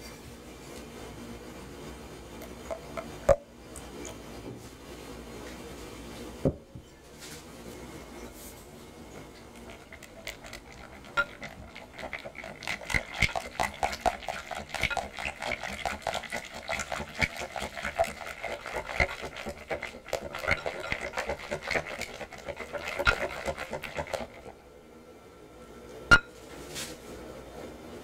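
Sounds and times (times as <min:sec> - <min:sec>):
whisk clicking on glass bowl: 0:09.6 - 0:24.5.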